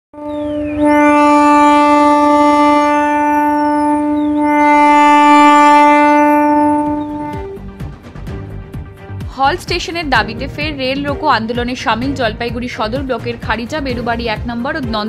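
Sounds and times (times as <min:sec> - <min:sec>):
loud horn-like blasts: 0:00.1 - 0:07.9.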